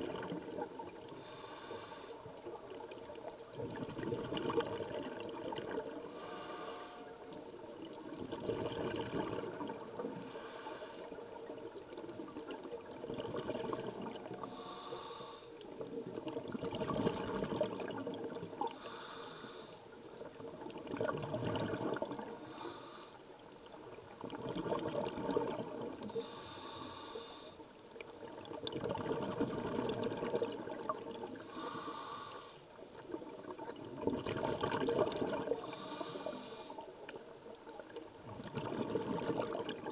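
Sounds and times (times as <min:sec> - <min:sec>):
exhaled bubbles rushing: 0:00.0 - 0:01.0, 0:02.9 - 0:06.1, 0:08.0 - 0:10.2, 0:11.5 - 0:14.4, 0:16.0 - 0:18.7, 0:20.4 - 0:22.4, 0:24.2 - 0:26.1, 0:28.2 - 0:31.5, 0:33.1 - 0:35.6, 0:38.2 - 0:39.9
regulator inhalation hiss: 0:01.1 - 0:02.3, 0:06.1 - 0:07.4, 0:10.1 - 0:11.4, 0:14.4 - 0:15.7, 0:18.6 - 0:20.0, 0:22.3 - 0:23.5, 0:26.0 - 0:27.8, 0:31.4 - 0:32.8, 0:35.6 - 0:37.0.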